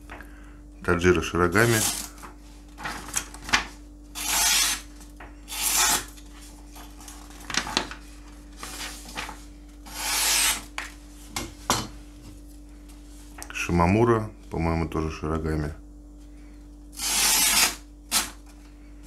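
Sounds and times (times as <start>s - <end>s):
knife slicing paper: 4.2s - 4.9s, 9.9s - 10.6s, 17.0s - 18.4s
paper crackles and taps: 7.0s - 9.4s.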